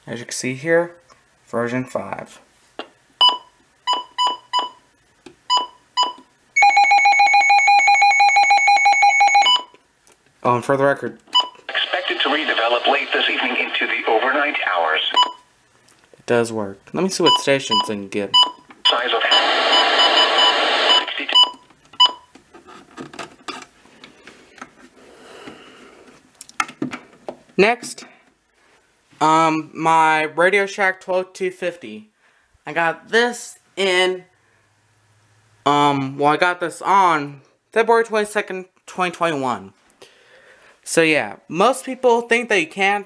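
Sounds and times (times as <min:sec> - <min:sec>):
faint radio hiss: 0:00.0 - 0:03.8, 0:09.8 - 0:22.0
radio button beeps: 0:15.1 - 0:15.4, 0:17.3 - 0:22.3.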